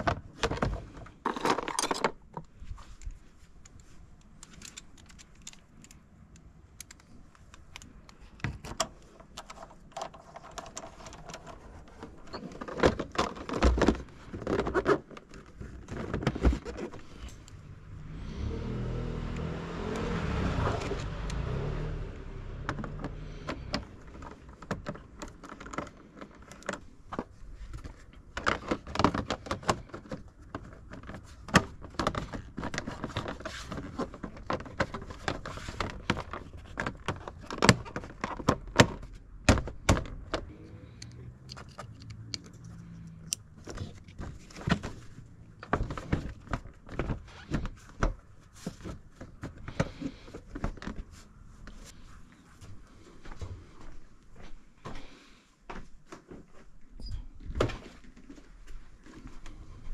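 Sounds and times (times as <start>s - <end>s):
plastic parts clicking and rattling: 0.0s - 17.6s, 22.6s - 51.2s.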